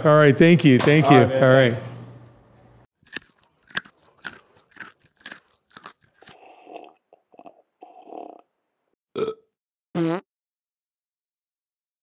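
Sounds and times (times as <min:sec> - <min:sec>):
crisp crunches: 0:03.1 - 0:06.5.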